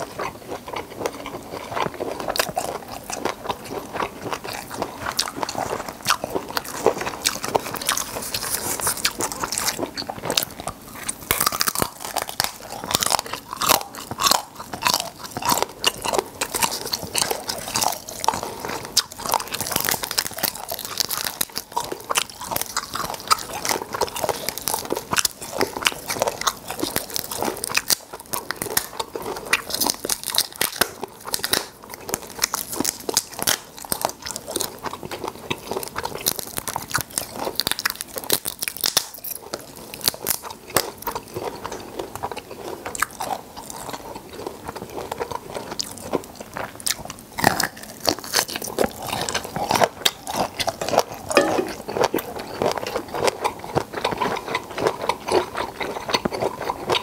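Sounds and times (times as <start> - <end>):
chewing and crunching prawns: 0.0 - 57.0
prawn shells cracking: 35.6 - 41.1.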